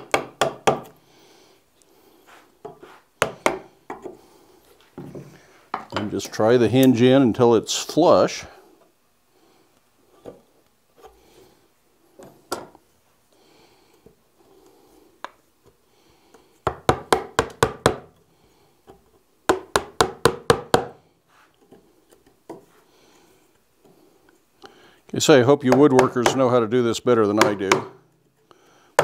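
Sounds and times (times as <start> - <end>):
chisel knocking into wood: 0.0 - 0.9, 25.7 - 26.4, 27.4 - 27.9
faint handling and scraping: 1.6 - 3.2, 21.2 - 24.6.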